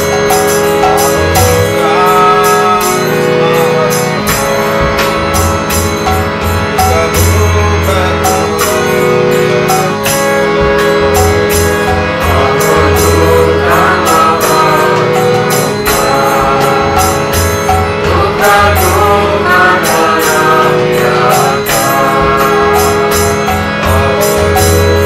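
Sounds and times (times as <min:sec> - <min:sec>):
pulsing low drum: 0:00.0 - 0:02.0, 0:09.6 - 0:25.0
held drone: 0:00.0 - 0:25.0
jingling hand percussion: 0:00.0 - 0:25.0
wavering melody: 0:00.0 - 0:25.0.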